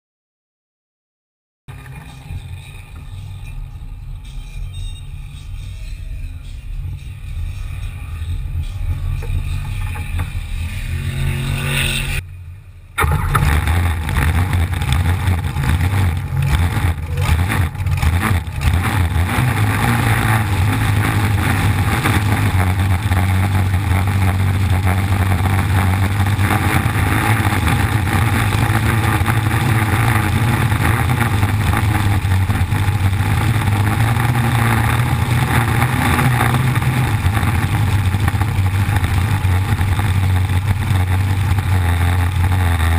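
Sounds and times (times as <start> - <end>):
boat engine running: 8.3 - 12.2, 13.0 - 42.9.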